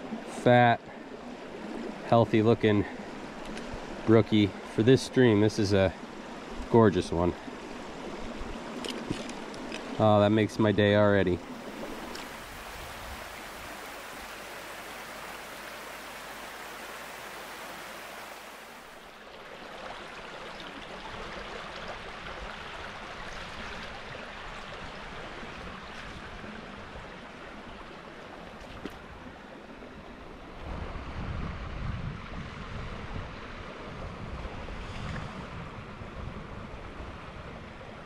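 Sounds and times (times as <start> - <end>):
brook water rushing: 0.0 - 31.2
wind buffeting microphone: 30.6 - 38.0.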